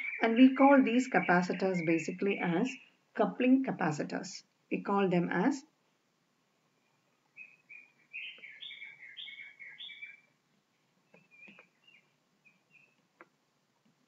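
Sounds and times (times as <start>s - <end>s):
faint bird chirping: 0.0s - 3.0s, 6.6s - 13.4s.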